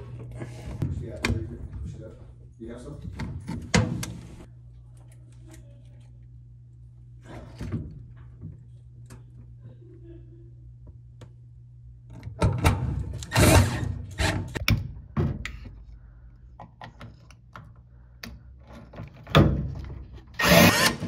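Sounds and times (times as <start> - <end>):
cordless drill running: 20.4 - 21.0.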